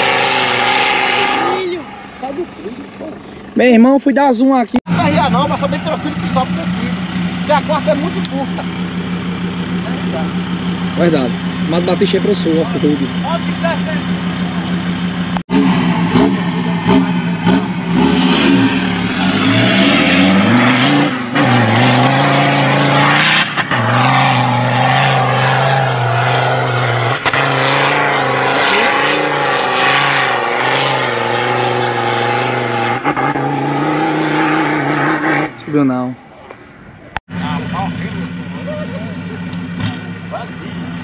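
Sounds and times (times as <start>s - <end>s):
vehicle engine revving: 0.0s - 41.0s.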